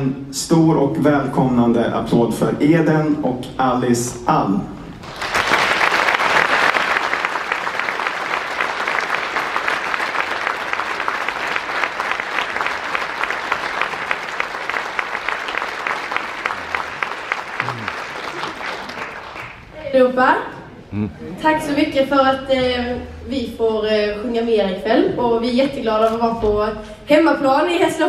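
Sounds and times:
audience applauding: 5.0s - 19.7s.

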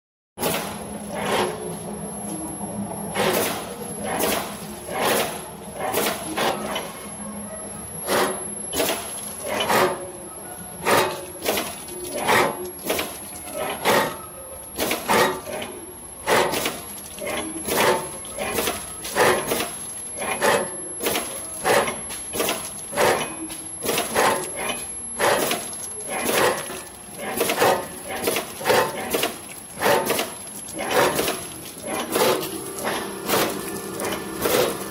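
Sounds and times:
machine clacking: 8.0s - 10.1s, 10.8s - 34.9s.

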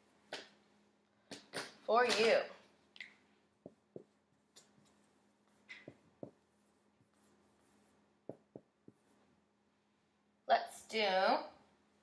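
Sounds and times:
marker writing on whiteboard: 3.6s - 9.3s.

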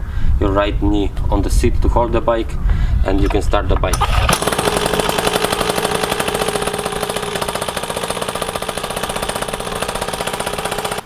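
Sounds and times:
recoil starter pull: 3.2s - 11.0s
two-stroke engine idling: 3.2s - 11.0s.

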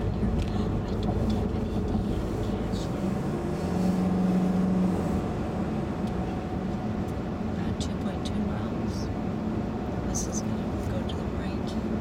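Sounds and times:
low hum: 0.0s - 9.2s
car engine and tyre noise: 0.0s - 12.0s.

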